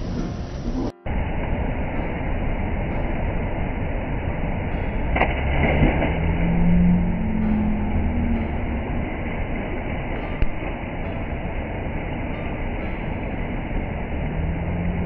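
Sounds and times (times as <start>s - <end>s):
low drawn-out voice: 0.0s - 1.6s
river water rushing: 0.0s - 15.0s.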